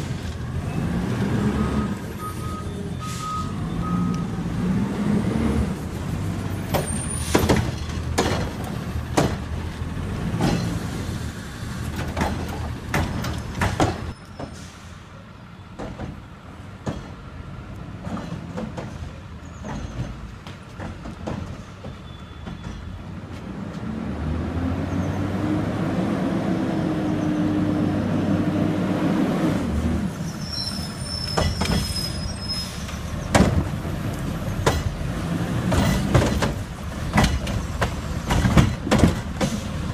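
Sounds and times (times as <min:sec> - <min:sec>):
knocks and clanks: 0:06.7 - 0:09.5, 0:11.9 - 0:14.6, 0:33.3 - 0:33.8, 0:34.6 - 0:35.0, 0:35.6 - 0:39.9
thin high squeal: 0:30.2 - 0:33.0.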